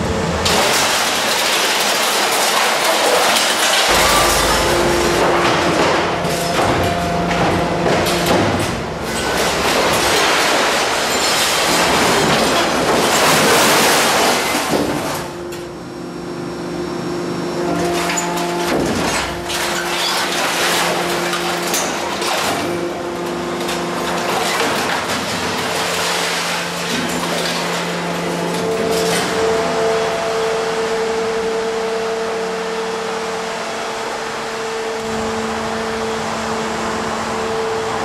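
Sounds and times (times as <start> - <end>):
scrap metal clattering: 0.5 - 15.3, 17.6 - 29.5
hydraulic machinery hum: 3.9 - 13.0.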